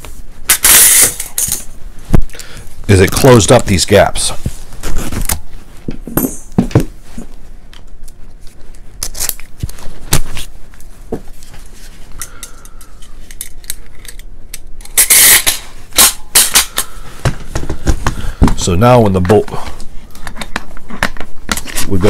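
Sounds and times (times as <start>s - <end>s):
metal parts clicking and clinking: 0.5s - 1.7s, 12.2s - 16.9s.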